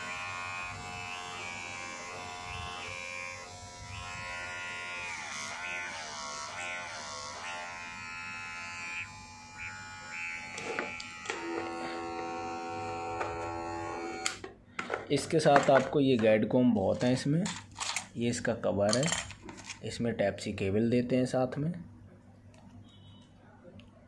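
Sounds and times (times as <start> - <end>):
electric hair clipper buzzing: 0.0 - 14.4.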